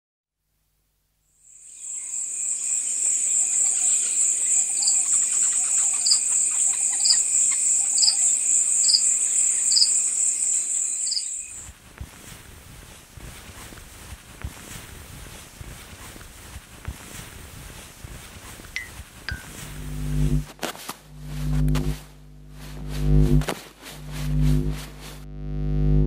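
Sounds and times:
cricket chirring: 1.4 - 11.6.

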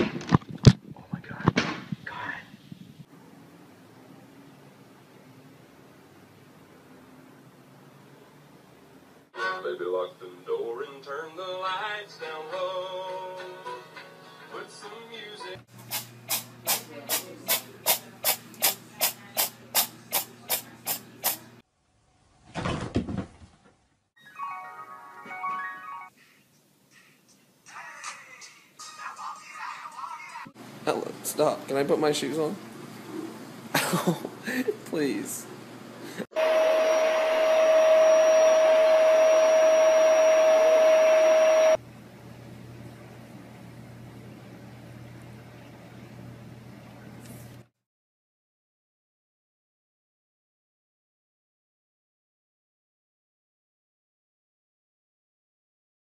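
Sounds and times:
tune: 24.2 - 26.1
appliance motor whine with rushing air: 36.3 - 41.8.

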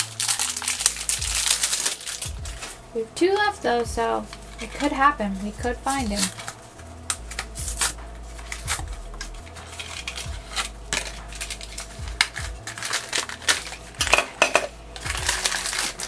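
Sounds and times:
cardboard tearing: 0.0 - 2.8, 5.8 - 14.0, 15.0 - 16.0.

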